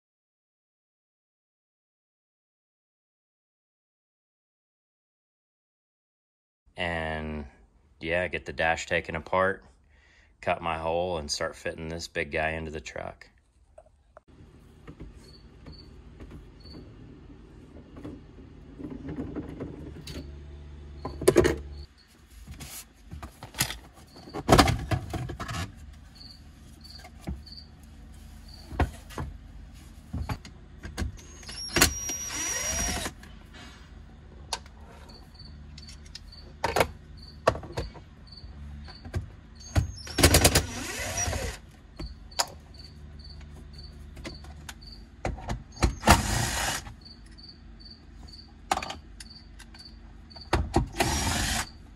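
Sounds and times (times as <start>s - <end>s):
cordless drill whining: 31.2s - 33.2s, 40.0s - 41.6s, 46.0s - 47.0s, 50.9s - 51.8s.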